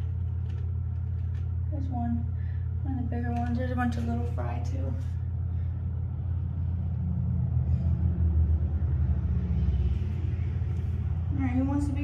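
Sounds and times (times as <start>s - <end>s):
low rumbling hum: 0.0s - 12.0s.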